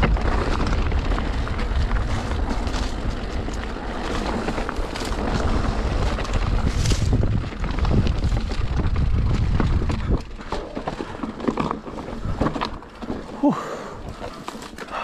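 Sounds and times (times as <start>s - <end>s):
wind buffeting microphone: 0.0s - 11.2s
bike rattling and knocking: 0.0s - 15.0s.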